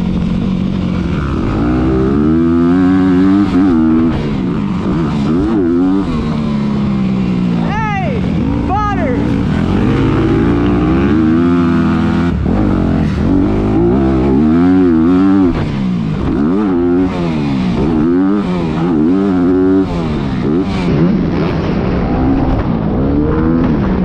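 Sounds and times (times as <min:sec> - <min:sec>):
dirt bike engine revving: 0:00.0 - 0:24.0.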